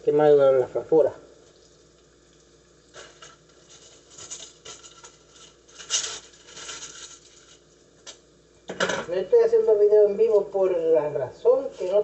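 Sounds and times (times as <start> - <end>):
sausage and onion sizzling in oil: 1.3 - 8.7.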